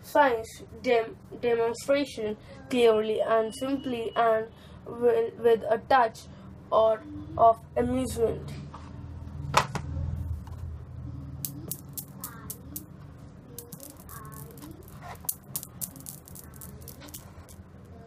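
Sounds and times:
steel balls clicking: 0:11.4 - 0:18.0.

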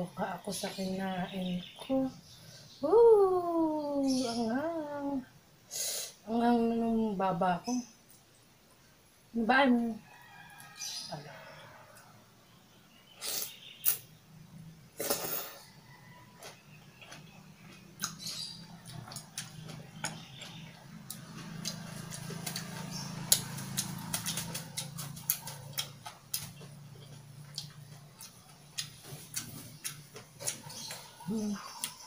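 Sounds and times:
wet chewing and mouth smacks: 0:16.3 - 0:32.0.

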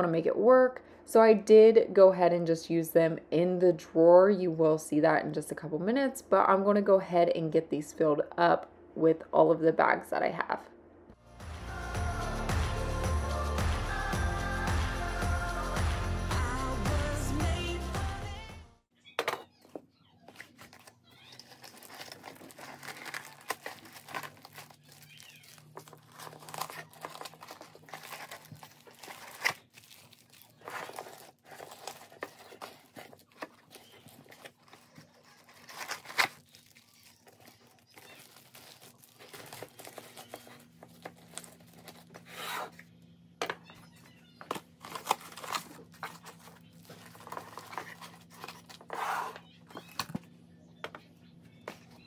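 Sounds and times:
plastic bags crinkling: 0:20.3 - 0:42.7, 0:44.5 - 0:49.1.

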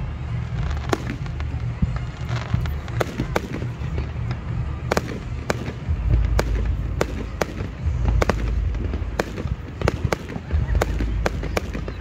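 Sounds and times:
fireworks bangs: 0:00.0 - 0:12.0.

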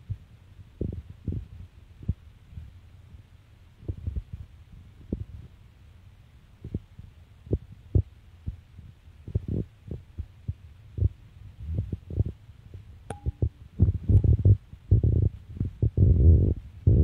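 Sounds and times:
thin tone: 0:13.1 - 0:13.6.

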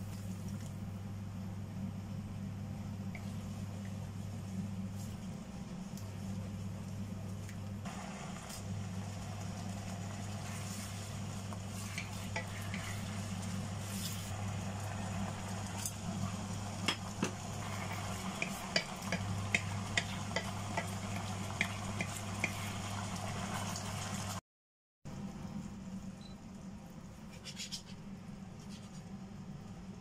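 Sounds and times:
sauce bubbling and sizzling in a wok: 0:07.9 - 0:24.4
utensil scraping a pan: 0:11.7 - 0:13.2.

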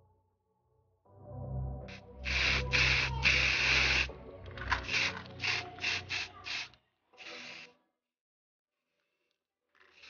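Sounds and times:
spray paint hissing: 0:01.9 - 0:07.7.

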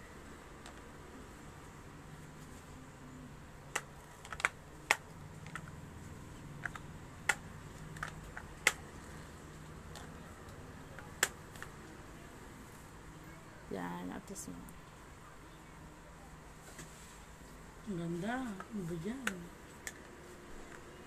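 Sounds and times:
faint low hum: 0:00.0 - 0:21.0.

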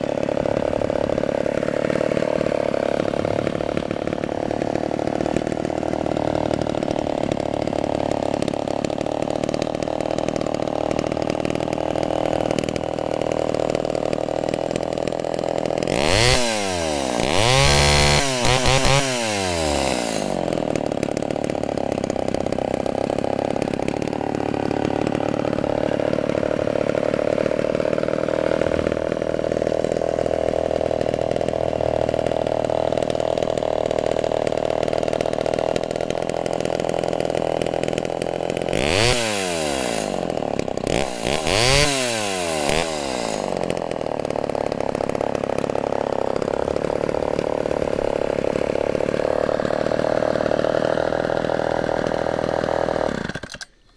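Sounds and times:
chainsaw engine idling and revving: 0:00.0 - 0:53.9.

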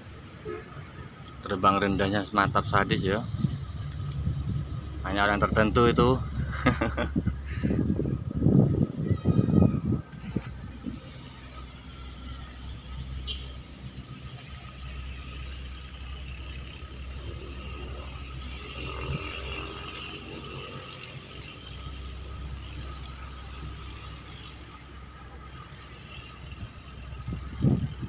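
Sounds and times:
wind rumble on microphone: 0:00.0 - 0:11.9, 0:17.0 - 0:28.0
model plane motors whining: 0:14.2 - 0:28.0.

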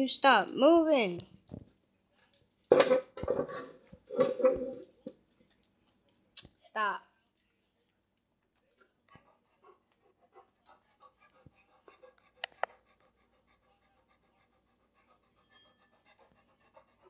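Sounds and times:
dog panting: 0:09.1 - 0:17.0.

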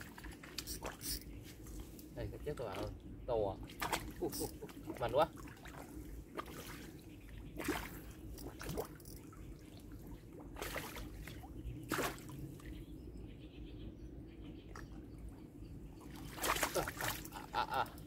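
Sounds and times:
water splashing: 0:00.0 - 0:01.3, 0:02.5 - 0:12.7, 0:16.1 - 0:18.0.

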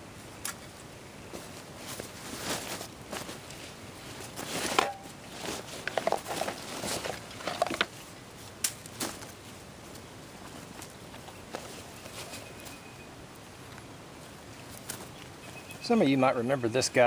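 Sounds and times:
fabric backpack rustling: 0:01.3 - 0:07.9, 0:10.4 - 0:12.8.

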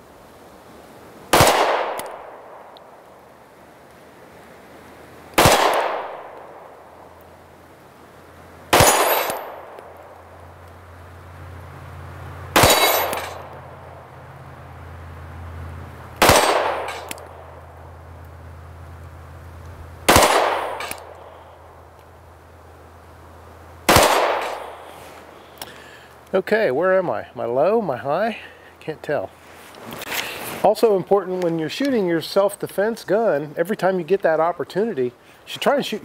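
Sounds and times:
pistol shots: 0:01.3 - 0:02.6, 0:05.4 - 0:06.7, 0:08.7 - 0:10.0, 0:12.5 - 0:13.6, 0:16.2 - 0:17.6, 0:20.0 - 0:21.2, 0:23.8 - 0:24.9.

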